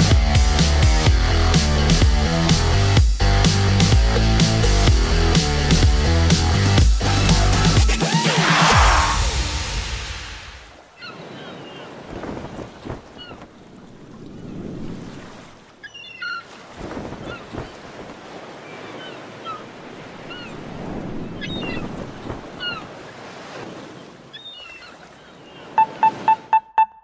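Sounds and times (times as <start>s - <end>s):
waves washing: 4.5s - 26.9s
wind: 8.7s - 27.0s
short electronic beeps: 25.8s - 27.0s.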